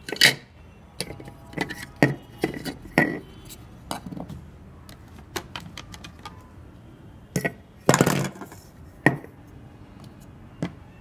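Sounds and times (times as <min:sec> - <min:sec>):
plastic parts clicking and knocking: 0:00.0 - 0:06.4, 0:07.4 - 0:09.3.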